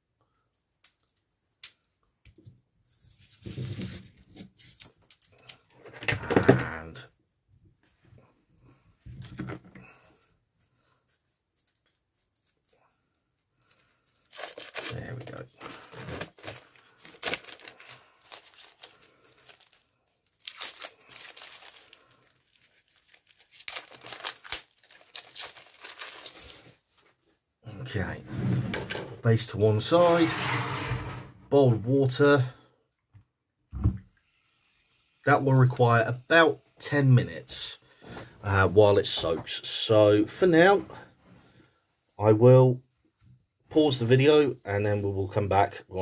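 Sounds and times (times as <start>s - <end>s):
plastic wrapping crinkling and tearing: 11.6s - 27.2s
knife cutting plastic film: 14.2s - 26.6s.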